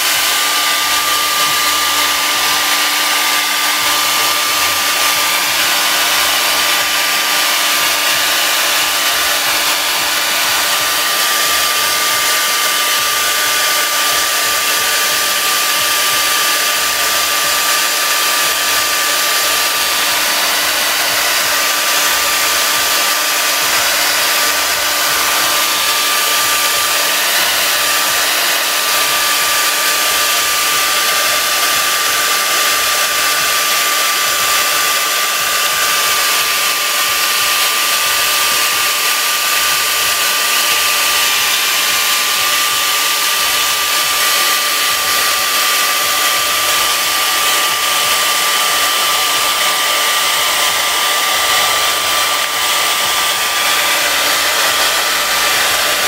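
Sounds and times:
hair dryer running: 0.0s - 56.0s.

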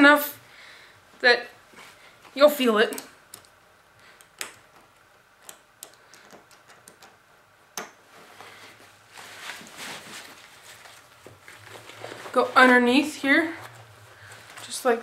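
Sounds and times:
straps rustling: 8.1s - 15.0s.

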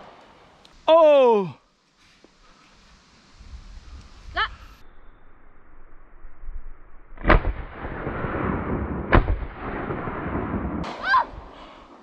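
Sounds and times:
shotgun shots: 7.2s - 11.0s
rolling echo of gunshots: 7.2s - 11.5s.

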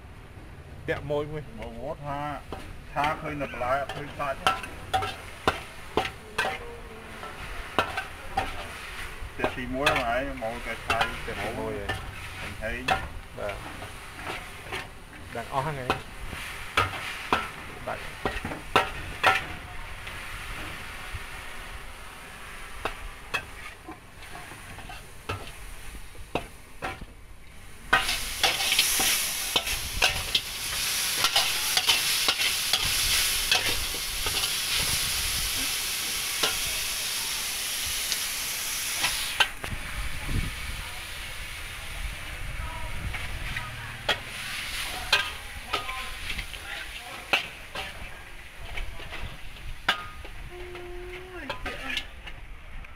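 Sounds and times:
loud steady hiss: 0.0s - 52.2s
food sizzling: 0.7s - 52.8s
metal spatula scraping a wok: 2.4s - 20.9s, 22.6s - 27.0s, 27.8s - 37.3s, 43.1s - 52.4s.

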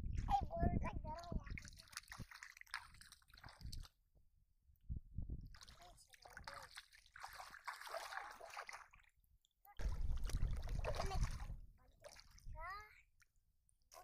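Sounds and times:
feet wading through muddy water: 1.6s - 3.9s, 5.5s - 9.1s, 9.8s - 12.5s.

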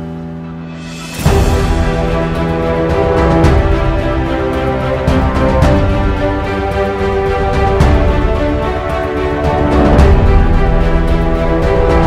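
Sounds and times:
background music with heavy bass: 0.0s - 12.0s
percussion hits: 0.7s - 12.0s.

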